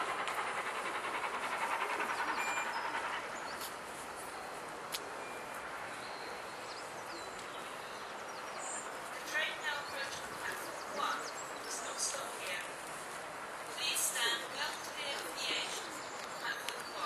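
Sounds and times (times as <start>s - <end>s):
steam train pulling away: 0.0s - 7.1s.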